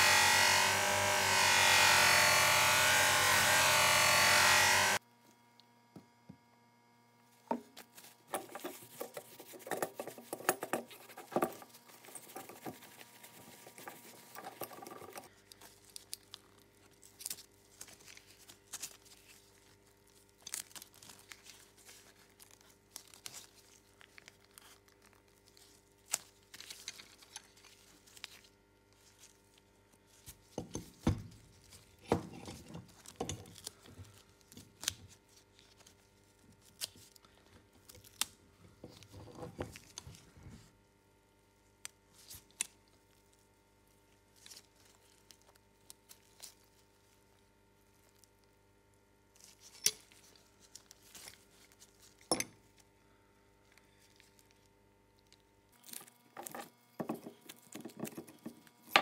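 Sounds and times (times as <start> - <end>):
cloth rubbing on metal: 7.8 - 15.3
tape tearing and crinkling: 15.3 - 30.4.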